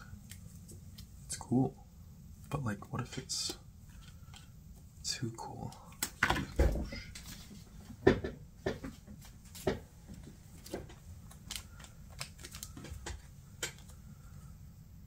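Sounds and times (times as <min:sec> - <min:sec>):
trading cards being handled: 0:02.9 - 0:04.9, 0:09.2 - 0:14.1.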